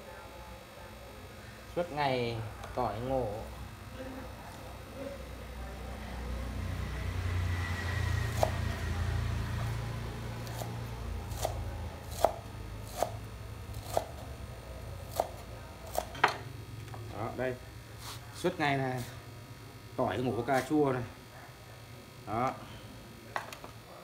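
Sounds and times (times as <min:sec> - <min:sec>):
knife chopping on wooden board: 0:11.3 - 0:13.2, 0:13.8 - 0:14.2, 0:15.1 - 0:16.4.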